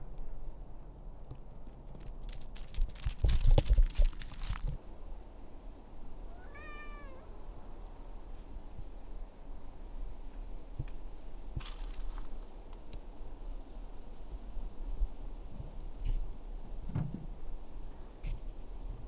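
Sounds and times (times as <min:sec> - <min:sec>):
footsteps on gravel: 0:01.7 - 0:04.8, 0:11.6 - 0:12.3
cat meowing: 0:06.3 - 0:07.4.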